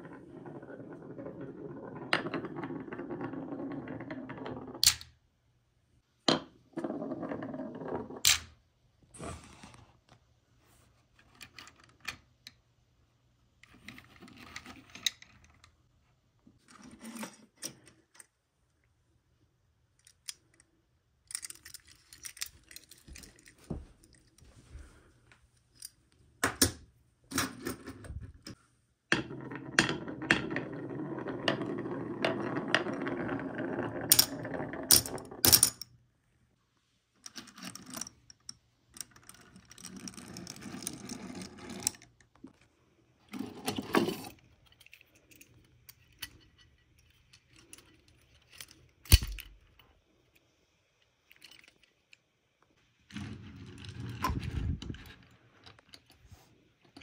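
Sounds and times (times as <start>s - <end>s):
marbles rolling on wooden track: 0.0s - 5.2s, 6.7s - 8.4s, 29.1s - 35.8s, 39.0s - 42.2s, 53.1s - 56.1s
toy trucks clicking and rattling: 20.0s - 23.6s.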